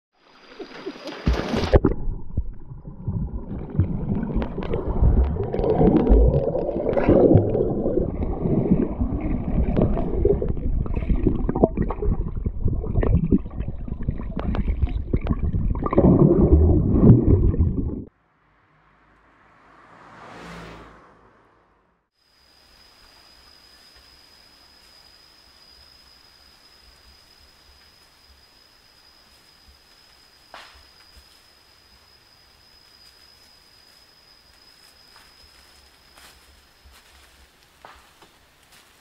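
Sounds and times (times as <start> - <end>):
bubbles: 0.4 - 18.1
muffled underwater gurgling: 1.6 - 18.1.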